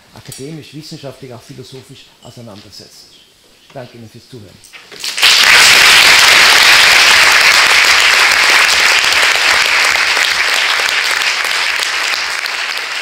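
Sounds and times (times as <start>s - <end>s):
audience applauding: 5.0s - 13.0s.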